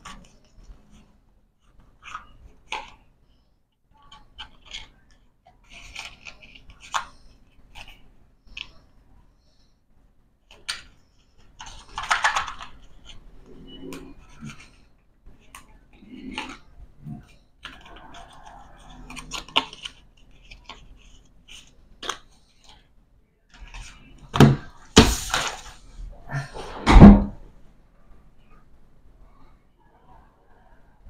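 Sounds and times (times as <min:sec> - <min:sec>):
playing cards rustling in hands: 0:04.2 - 0:08.9, 0:10.5 - 0:22.9, 0:23.5 - 0:26.0.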